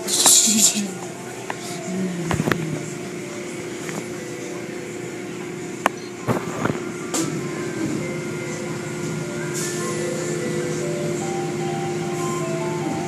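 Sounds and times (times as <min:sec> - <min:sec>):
machine hum: 0:00.0 - 0:13.0.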